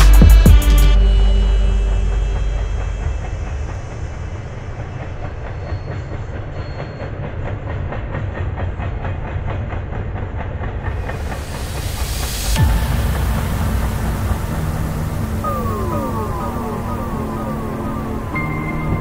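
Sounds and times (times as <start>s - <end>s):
freight train wheels rolling on rail: 3.2s - 19.0s
clickety-clack of train wheels: 3.4s - 14.6s.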